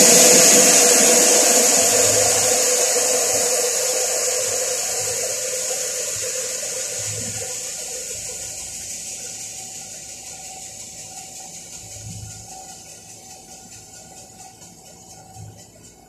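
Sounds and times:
refrigerant hissing out: 0.0s - 11.2s.

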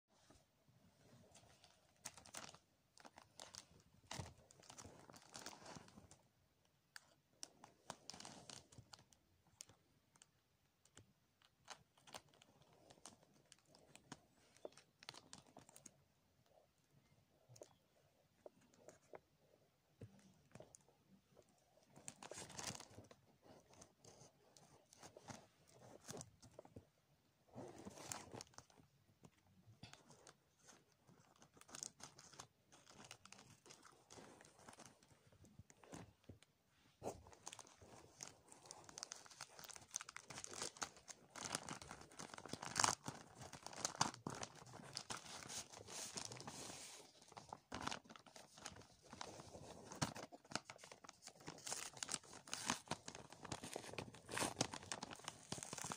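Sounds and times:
plastic packaging crinkling and tearing: 1.4s - 6.2s, 22.0s - 23.9s, 27.6s - 36.0s, 37.0s - 55.9s.

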